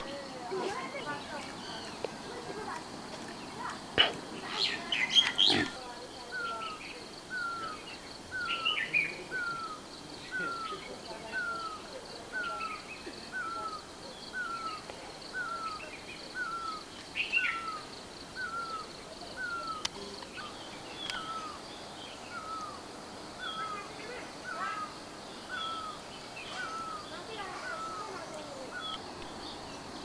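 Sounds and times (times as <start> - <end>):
birds chirping: 0.0 - 30.0
steady high hiss: 0.0 - 30.0.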